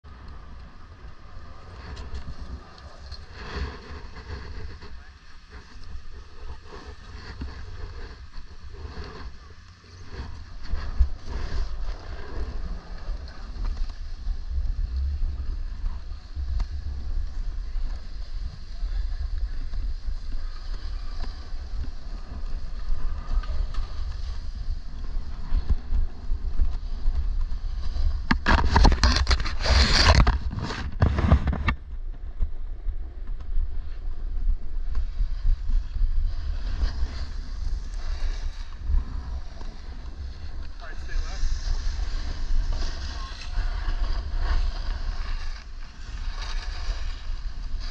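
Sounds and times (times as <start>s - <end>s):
wind rumbling on microphone: 0.0s - 47.9s
skis sliding on snow: 1.1s - 47.9s
edges scraping snow: 26.7s - 31.6s, 35.0s - 47.9s.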